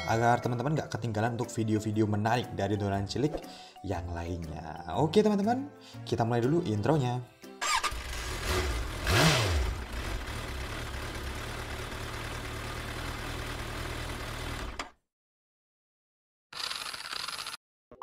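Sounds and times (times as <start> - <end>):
car engine revving: 7.9 - 12.0.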